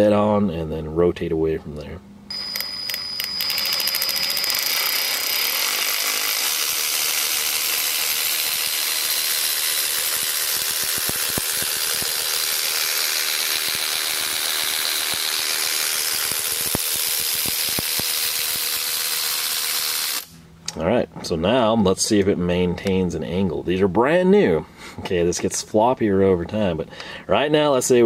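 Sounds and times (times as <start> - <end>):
cordless ratchet motor whine: 2.3 - 20.4.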